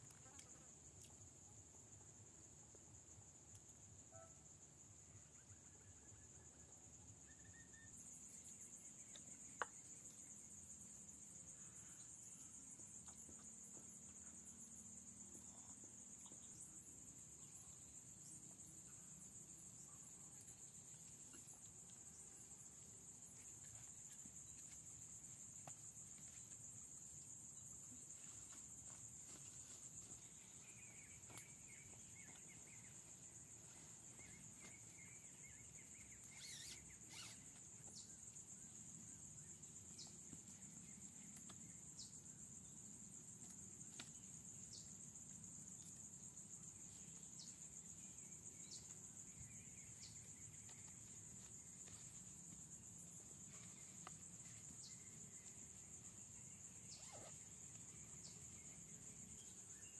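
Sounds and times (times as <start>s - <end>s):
high-pitched insect chorus: 4.9s - 59.9s
faint bird chirps: 5.1s - 9.6s, 30.2s - 38.1s, 56.8s - 57.4s.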